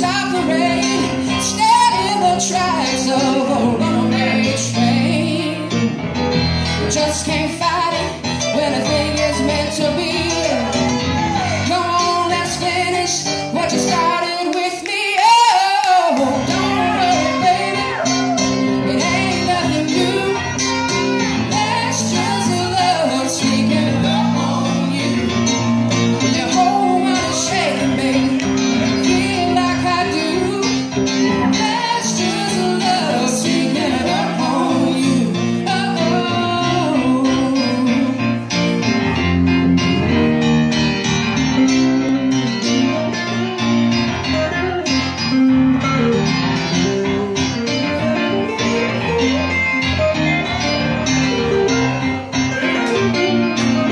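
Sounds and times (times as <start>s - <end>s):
woman singing: 0.0s - 6.0s, 6.8s - 38.4s
keyboard: 0.0s - 53.9s
electric guitar: 15.8s - 53.9s.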